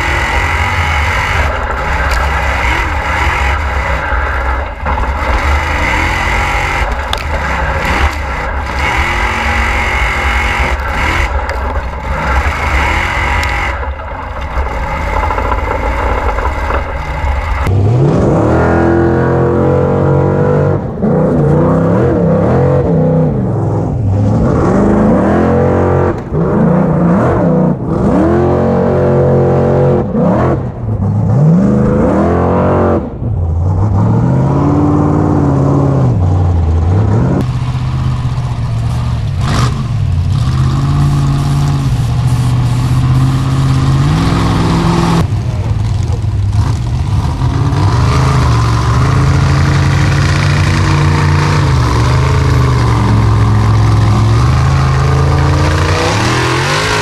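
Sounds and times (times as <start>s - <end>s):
tyres spinning in dirt: 0.0s - 19.2s, 36.2s - 57.0s
buggy engine revving hard: 0.0s - 57.0s.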